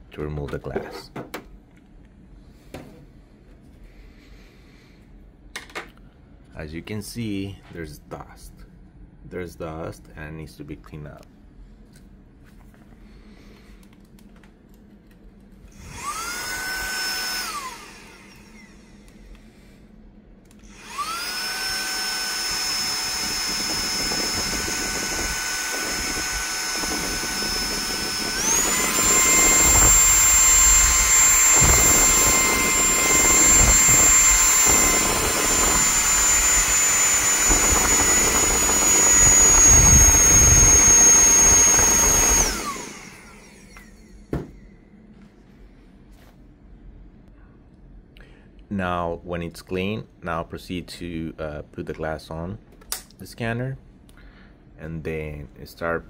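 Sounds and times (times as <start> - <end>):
electric air duster whine: 15.7 - 44.9
air duster blast: 20.7 - 43.8.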